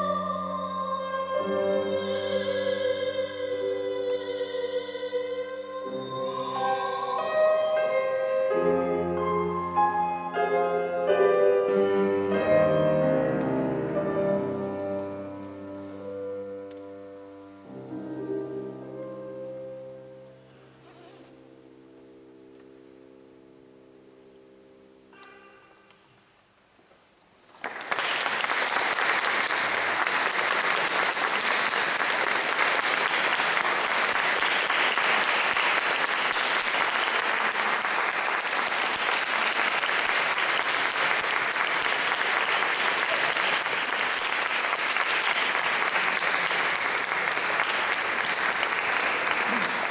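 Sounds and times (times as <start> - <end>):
audience applause: 27.5 - 49.9.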